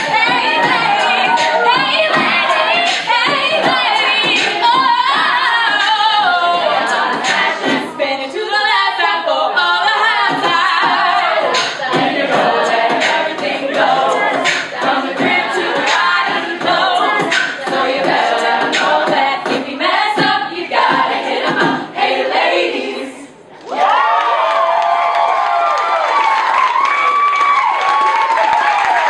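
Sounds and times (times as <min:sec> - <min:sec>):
vocal percussion beat: 0:00.0 - 0:08.3, 0:09.8 - 0:22.7
backing voices singing: 0:00.0 - 0:23.4.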